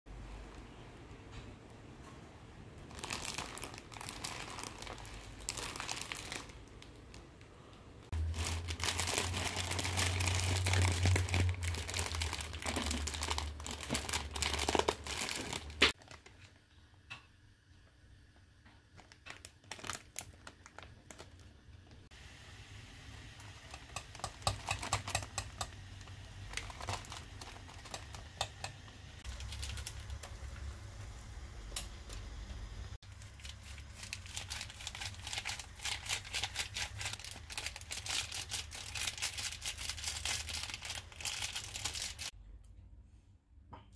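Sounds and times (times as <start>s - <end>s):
plastic packet crinkling: 2.8s - 7.4s, 8.1s - 16.6s, 18.9s - 22.0s, 23.3s - 30.7s, 33.0s - 42.3s.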